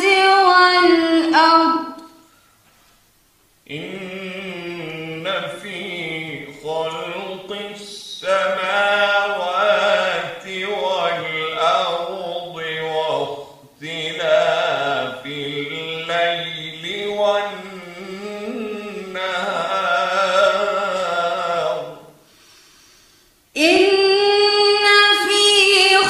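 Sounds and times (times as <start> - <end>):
man chanting melodically: 3.7 - 22.1.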